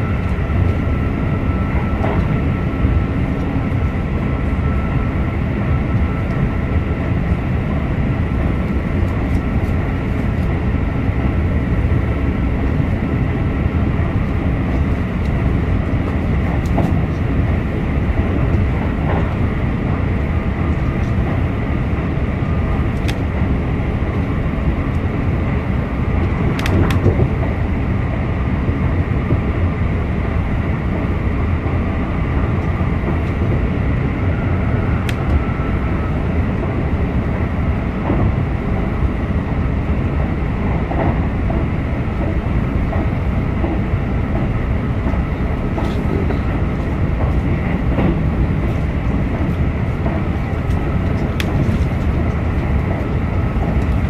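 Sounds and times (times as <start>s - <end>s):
wheels rumbling on rail: 0.0s - 54.0s
light train clicks: 0.1s - 0.8s, 1.8s - 2.5s, 5.9s - 6.5s, 8.4s - 10.6s, 14.0s - 27.6s, 32.4s - 33.6s, 34.7s - 54.0s.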